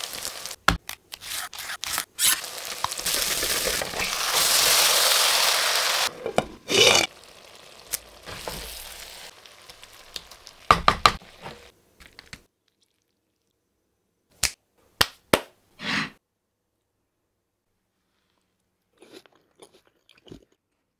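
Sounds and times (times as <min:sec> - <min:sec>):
food hissing in clay pot: 0:02.2 - 0:07.2.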